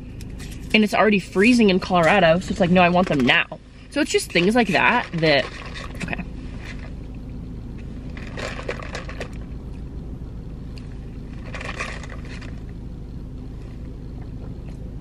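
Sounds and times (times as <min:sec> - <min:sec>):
car cabin rumble: 0:00.0 - 0:15.0
ice rattling in plastic cup: 0:04.2 - 0:06.2, 0:08.2 - 0:09.4.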